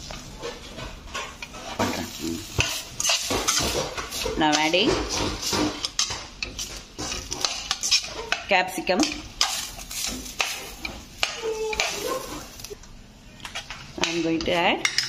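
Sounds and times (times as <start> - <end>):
vegetables sizzling in hot oil: 1.7 - 12.8.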